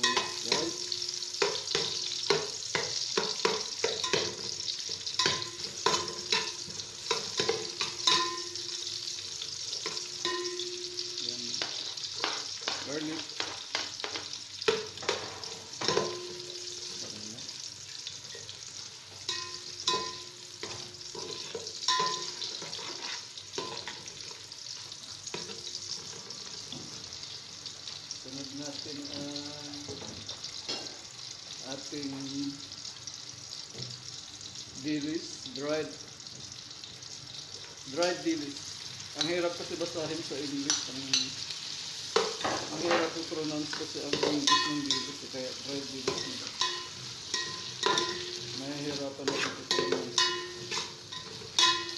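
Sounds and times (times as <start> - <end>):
metal spoon clinking against pot: 0.0 - 4.5, 5.1 - 8.8, 9.8 - 11.2, 15.8 - 16.6, 19.3 - 22.8, 23.6 - 24.1, 44.1 - 45.2, 46.0 - 51.9
onions sizzling in hot oil: 0.0 - 51.9.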